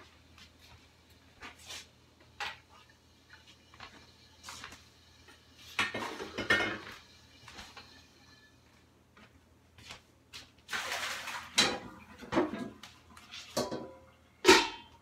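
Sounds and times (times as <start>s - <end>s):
dishes and utensils clattering: 5.7s - 8.0s, 11.0s - 15.0s.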